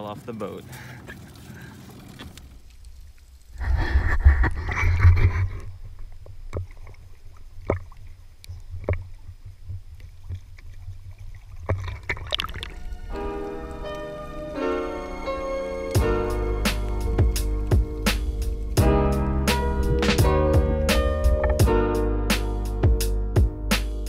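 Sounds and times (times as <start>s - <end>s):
sea water splashing and lapping: 0.4s - 2.9s, 5.6s - 20.3s
music: 12.8s - 24.0s.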